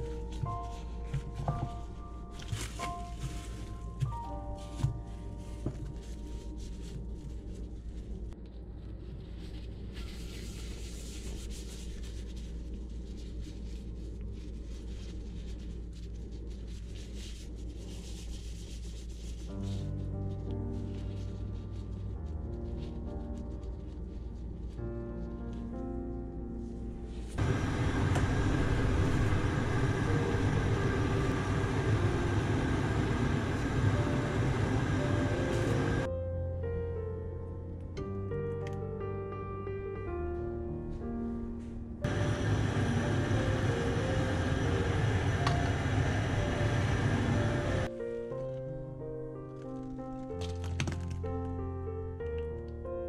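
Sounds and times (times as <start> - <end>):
plastic gloves rubbing and rustling: 0.0 - 36.1, 42.0 - 51.5.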